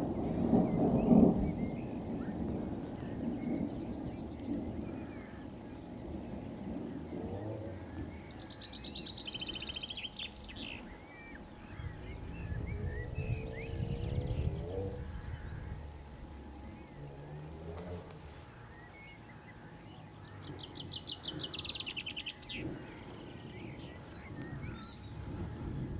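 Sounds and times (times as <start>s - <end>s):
low rumble: 0.0s - 25.9s
songbirds singing: 0.0s - 25.9s.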